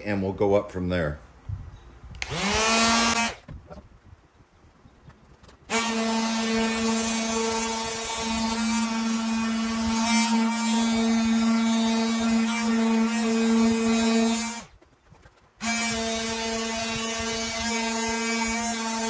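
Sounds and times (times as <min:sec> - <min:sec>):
electric sander buzzing: 0:02.2 - 0:03.8, 0:05.7 - 0:14.7, 0:15.6 - 0:19.0.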